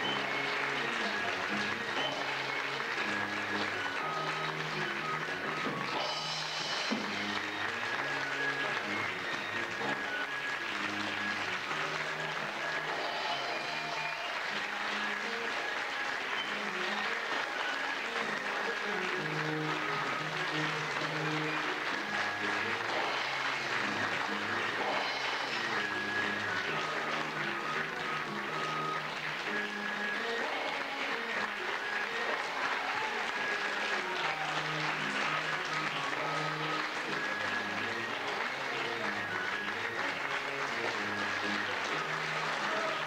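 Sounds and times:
audience applauding: 0:00.0 - 0:43.0.

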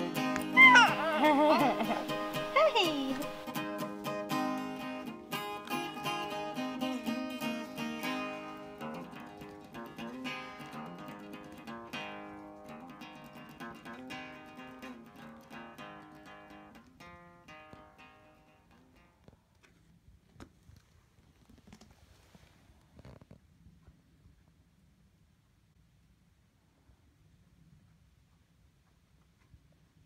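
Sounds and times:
acoustic guitar music: 0:00.0 - 0:19.3.

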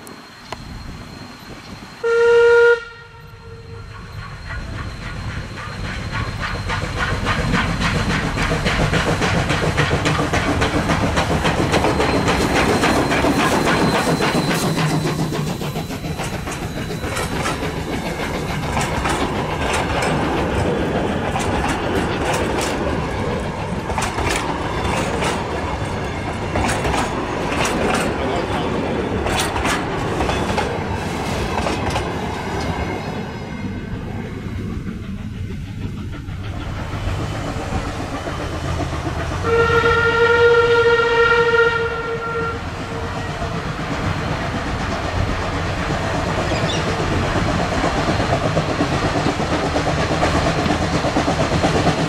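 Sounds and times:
steam train passing: 0:00.0 - 0:52.0
steam whistle: 0:02.0 - 0:05.7, 0:39.4 - 0:43.1
wheels clicking over rail joints: 0:04.4 - 0:32.9, 0:43.0 - 0:52.0.

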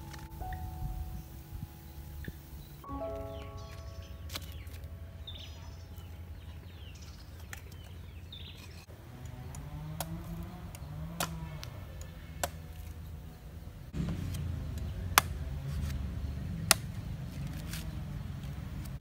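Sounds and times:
low hum: 0:00.0 - 0:08.9
birds chirping: 0:00.0 - 0:19.0
cleaver chopping coconut: 0:09.6 - 0:13.0, 0:16.6 - 0:17.9.

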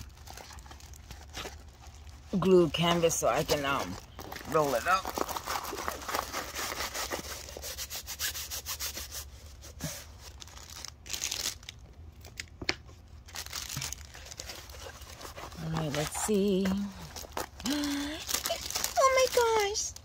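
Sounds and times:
paper and plastic rustling: 0:00.0 - 0:07.9, 0:09.2 - 0:20.0.

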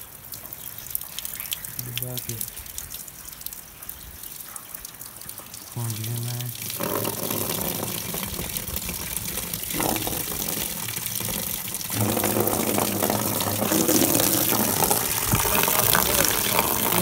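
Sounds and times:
water splashing into plastic tub: 0:05.2 - 0:17.0.

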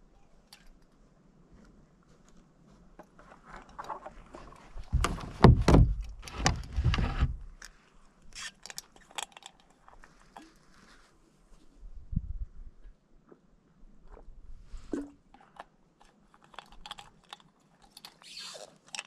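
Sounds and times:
boat hull knocks and rumble: 0:04.9 - 0:07.5.

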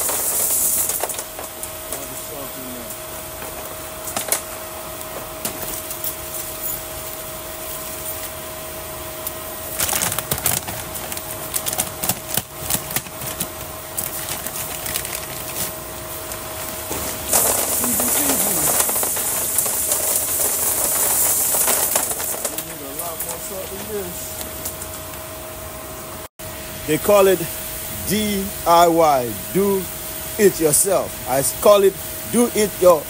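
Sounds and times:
salt pellets pouring into tank: 0:00.0 - 0:01.3, 0:16.9 - 0:23.6
plastic bag crackling: 0:00.0 - 0:02.8, 0:09.5 - 0:24.9.

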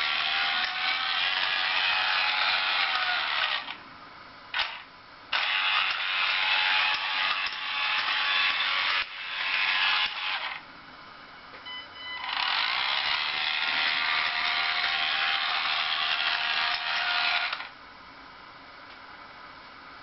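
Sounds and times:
toy train motor whirring: 0:00.0 - 0:03.8, 0:04.6 - 0:10.6, 0:12.2 - 0:17.7.

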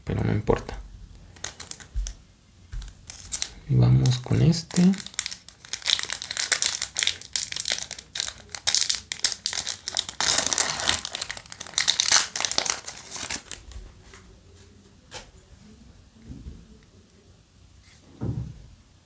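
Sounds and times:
foil wrapper crinkling and tearing: 0:01.3 - 0:02.2, 0:02.8 - 0:13.7.

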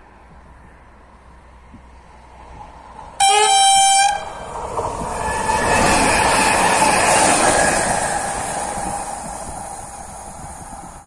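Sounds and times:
train wheels rushing on rails: 0:00.0 - 0:11.0
train horn blast: 0:03.2 - 0:04.5.

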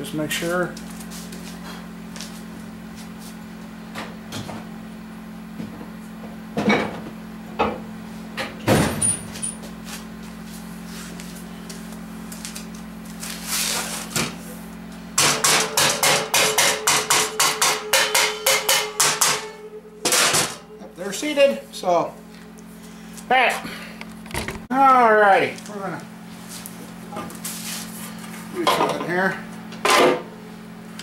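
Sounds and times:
hammer tapping metal: 0:15.2 - 0:20.4
low hum: 0:16.6 - 0:24.7.

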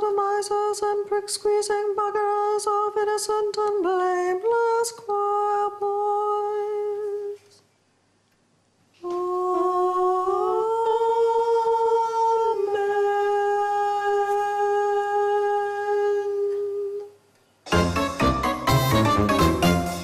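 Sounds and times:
woman singing wordless notes: 0:00.0 - 0:07.6, 0:09.0 - 0:17.3.

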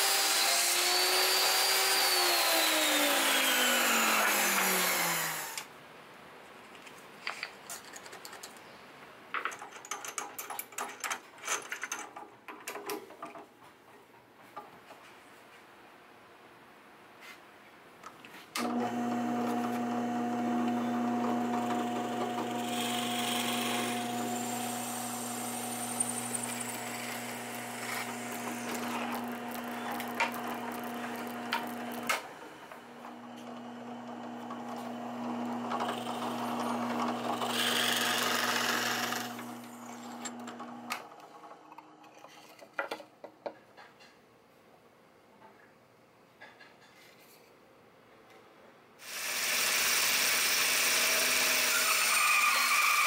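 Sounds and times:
drill bit cutting plywood: 0:00.0 - 0:05.6, 0:18.6 - 0:41.0, 0:49.0 - 0:53.0
drill press motor humming: 0:18.6 - 0:41.1.

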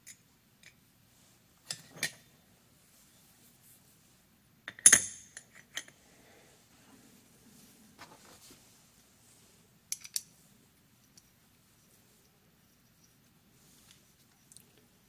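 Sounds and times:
small steel parts clinking: 0:09.9 - 0:10.3.

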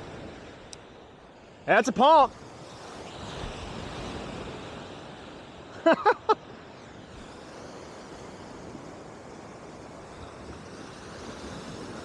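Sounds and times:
surf washing: 0:00.0 - 0:12.0
wind on microphone: 0:02.3 - 0:05.7, 0:06.7 - 0:12.0.

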